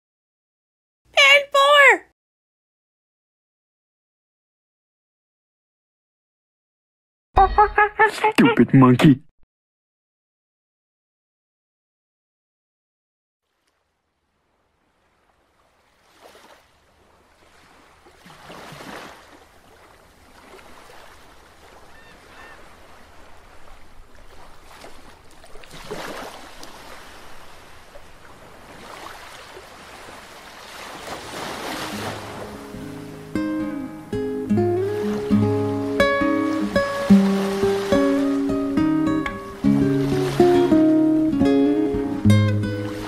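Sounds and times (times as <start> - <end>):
ocean waves washing in: 14.2 - 43.0.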